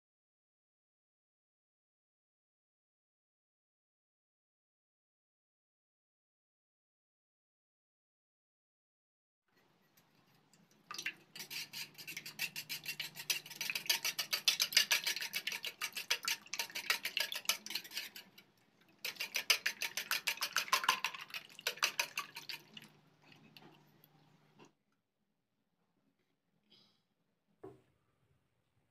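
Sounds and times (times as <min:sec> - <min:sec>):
whisk beating eggs in metal bowl: 0:09.8 - 0:22.9.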